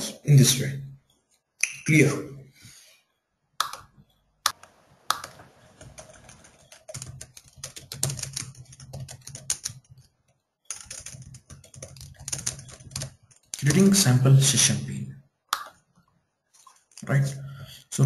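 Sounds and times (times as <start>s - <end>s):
typing on computer keyboard: 3.6s - 14.0s.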